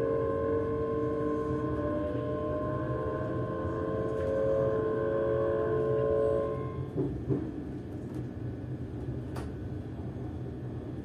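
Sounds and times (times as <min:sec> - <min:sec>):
warning tone: 0:00.0 - 0:07.0
electric train humming: 0:00.0 - 0:10.1.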